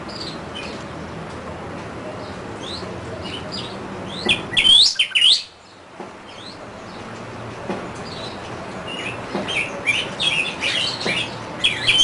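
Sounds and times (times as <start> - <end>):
bird chirps and whistled notes: 4.1 - 5.5, 9.0 - 12.0.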